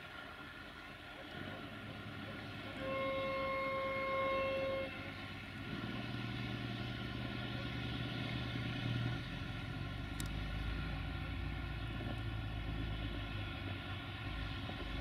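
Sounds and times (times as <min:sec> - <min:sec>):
diesel rail engine humming: 0:00.0 - 0:15.0
horn blast: 0:02.6 - 0:05.8
small click: 0:10.2 - 0:10.4.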